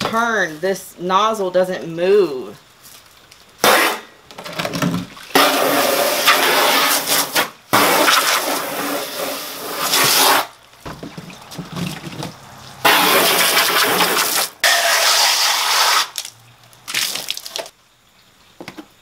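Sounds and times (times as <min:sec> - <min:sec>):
water pouring out: 0:05.0 - 0:10.4, 0:11.2 - 0:17.7
hose spraying water: 0:05.3 - 0:10.6, 0:12.6 - 0:16.3
water splashing against plastic: 0:09.8 - 0:15.2, 0:16.0 - 0:17.8.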